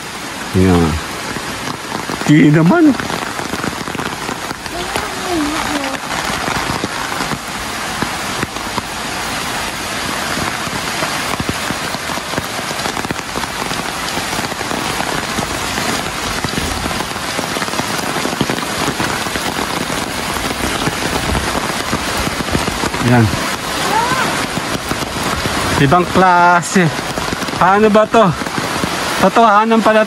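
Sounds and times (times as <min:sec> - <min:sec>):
heavy rain: 0:00.0 - 0:30.0.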